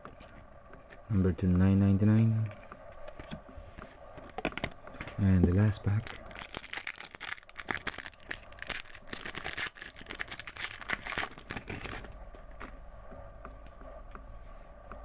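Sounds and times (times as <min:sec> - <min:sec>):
foil wrapper crinkling and tearing: 0:05.5 - 0:12.2.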